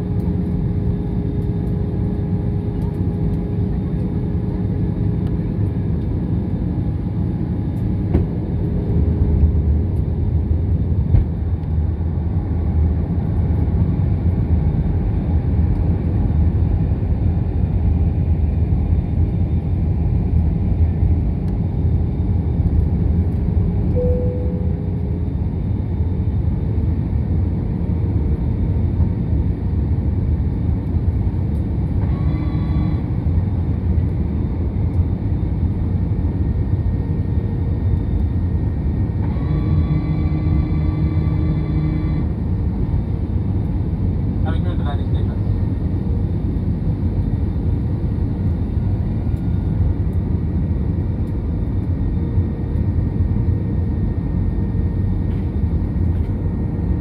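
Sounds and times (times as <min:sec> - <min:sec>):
airplane cabin rumble: 0:00.0 - 0:57.0
short tone: 0:23.9 - 0:25.0
faint steady hum: 0:23.9 - 0:25.7.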